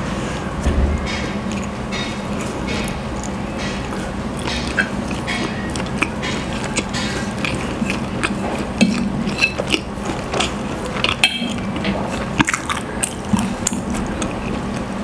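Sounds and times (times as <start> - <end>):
close chewing with wet smacks: 5.7 - 15.0.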